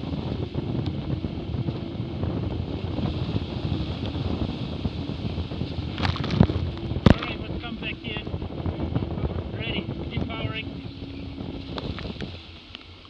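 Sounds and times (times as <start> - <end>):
water spraying off hull: 0.0 - 13.0
wind buffeting microphone: 0.0 - 13.0
sharp knocks or splashes: 5.9 - 7.4.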